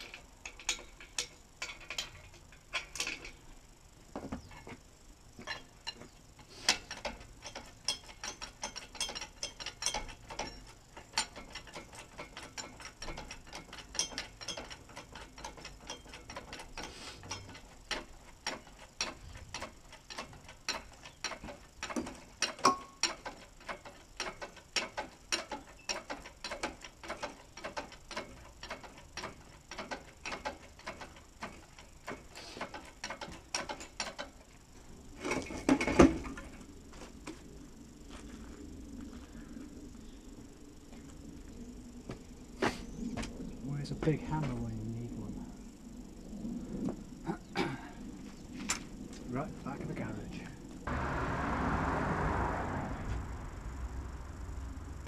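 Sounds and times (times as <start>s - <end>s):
hydraulic crane pump clicking: 6.6s - 34.4s.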